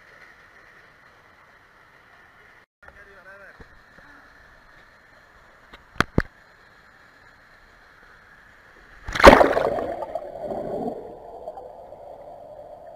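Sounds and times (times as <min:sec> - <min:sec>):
loud splash into pool: 0:09.0 - 0:11.0
underwater bubbles churning: 0:09.0 - 0:12.9.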